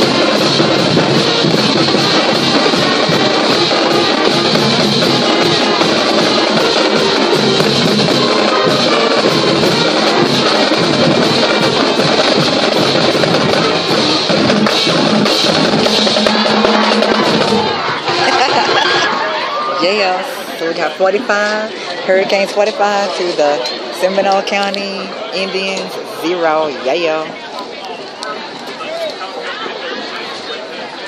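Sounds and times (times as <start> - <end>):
marching drums: 0.0 - 20.2
marching band playing: 0.0 - 27.3.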